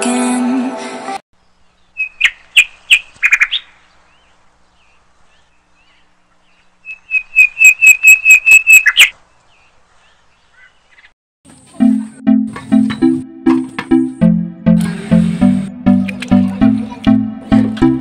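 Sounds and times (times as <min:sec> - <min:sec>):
small bird whistled calls: 0:02.0 - 0:03.7, 0:06.8 - 0:09.1.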